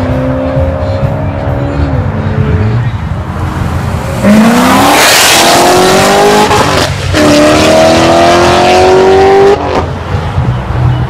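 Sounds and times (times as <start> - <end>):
car engine accelerating hard: 0.0 - 9.9.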